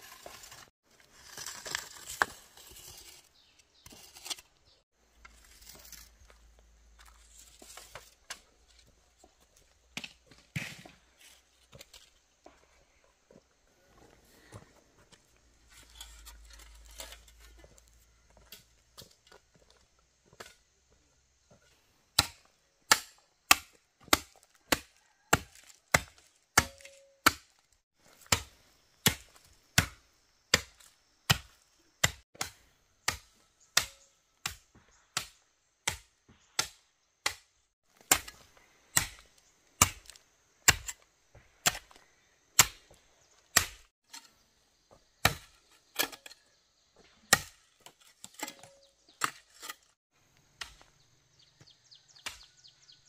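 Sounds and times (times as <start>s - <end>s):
hand tool striking: 26.0s - 27.5s.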